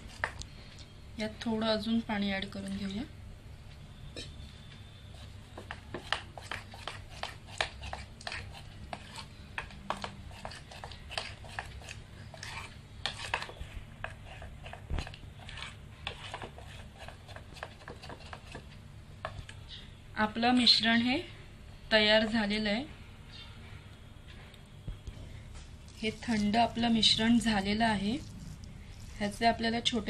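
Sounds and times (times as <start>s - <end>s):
low steady hum: 0.0s - 30.0s
batter stirred in metal bowl: 5.0s - 19.4s, 25.9s - 30.0s.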